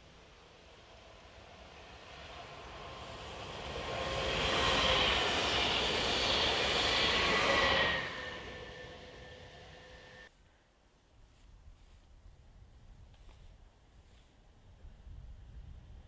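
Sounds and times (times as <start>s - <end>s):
train wheels rushing on rail: 0.0s - 10.3s
train motor whine: 0.9s - 10.3s.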